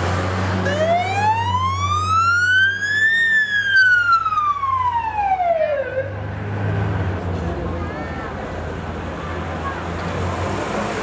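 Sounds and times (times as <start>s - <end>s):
siren wailing: 0.6s - 6.2s.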